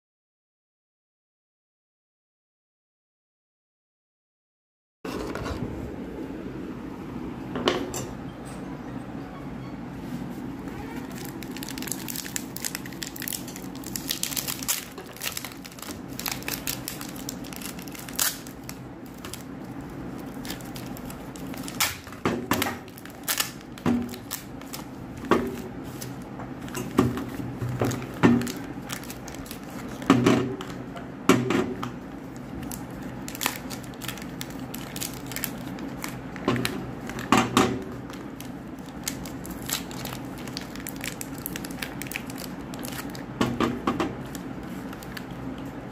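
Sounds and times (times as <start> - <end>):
paper wrappers crinkling and tearing: 10.7 - 30.8, 32.0 - 43.4, 44.2 - 45.8.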